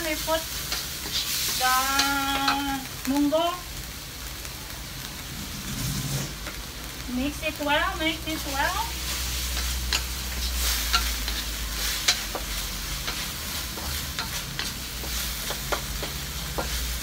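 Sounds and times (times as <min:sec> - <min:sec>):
chicken sizzling in oil: 0:00.0 - 0:17.0
spatula scraping and tapping pan: 0:00.6 - 0:02.8, 0:09.5 - 0:17.0.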